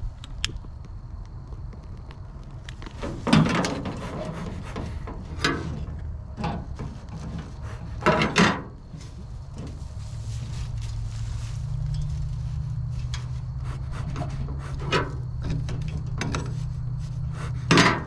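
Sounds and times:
bellows puffing with a creak: 1.8 - 11.2, 12.9 - 18.0.

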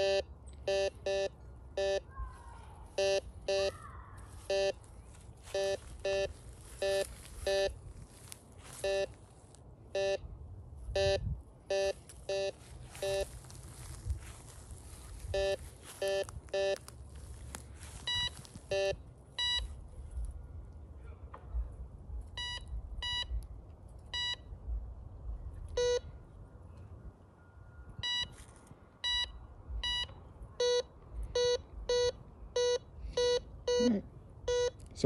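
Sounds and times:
metal detector beeping: 0.0 - 2.1, 3.0 - 3.7, 4.4 - 7.8, 8.6 - 9.2, 9.9 - 10.3, 10.9 - 13.4, 15.3 - 16.9, 18.0 - 19.7, 22.4 - 23.3, 24.1 - 24.5, 25.8 - 26.0, 27.9 - 28.4, 29.0 - 33.9, 34.5 - 34.8.

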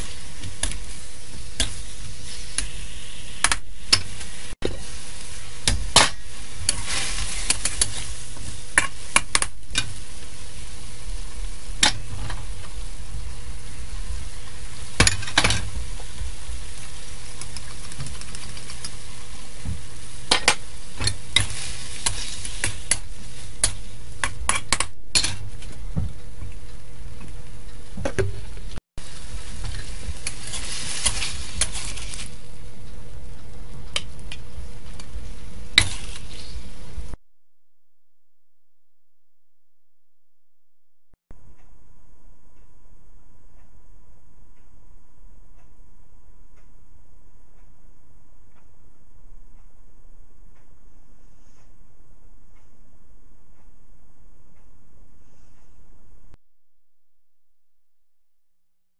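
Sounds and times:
food sizzling in a wok: 0.0 - 24.2, 28.4 - 37.2
spatula scraping metal wok: 6.4 - 10.2.

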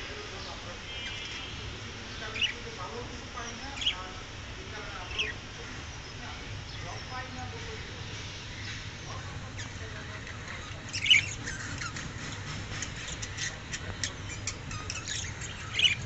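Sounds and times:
loud budgerigar squawks: 0.9 - 1.6, 9.6 - 16.0
budgerigars chirping: 0.9 - 4.1, 8.5 - 16.0.

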